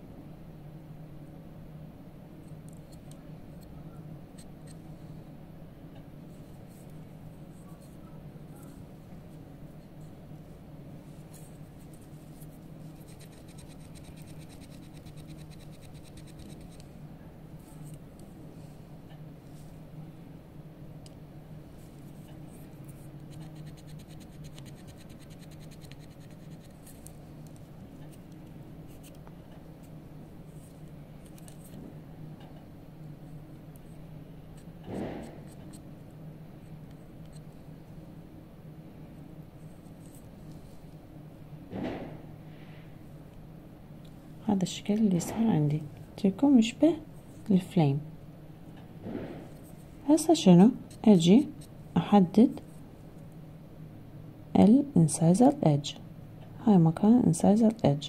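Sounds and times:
steady low hum: 0.0 - 58.0
knife scratching carving wax: 11.8 - 16.9, 23.2 - 27.1.

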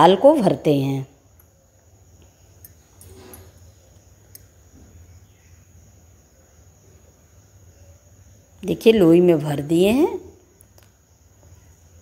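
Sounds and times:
small clicks: 10.6 - 11.0.

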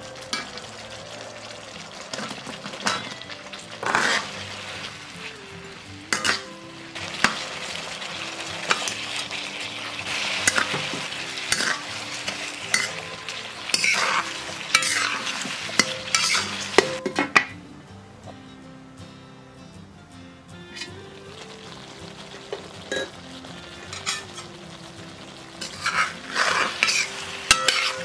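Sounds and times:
food sizzling in a wok: 0.0 - 17.2, 20.6 - 28.0
metal spatula scraping a wok: 2.2 - 5.1, 6.1 - 17.0, 23.8 - 24.5, 25.6 - 28.0
glass lid covering a wok: 22.5 - 23.2.

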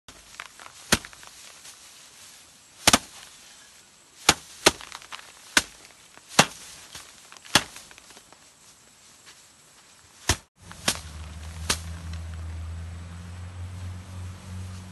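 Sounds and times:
rice bundles knocking on wooden board: 4.3 - 8.0.

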